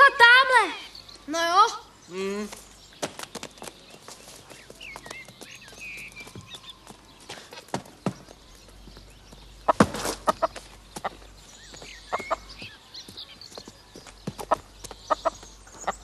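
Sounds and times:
hen clucking: 0:09.6 - 0:11.2, 0:12.0 - 0:12.6, 0:14.4 - 0:16.0.

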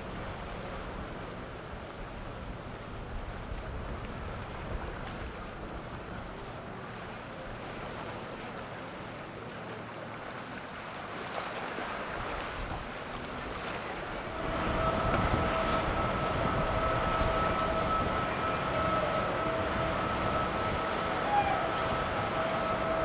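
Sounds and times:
boat engine and water rushing: 0:00.0 - 0:23.0
wind on microphone: 0:12.3 - 0:23.0.

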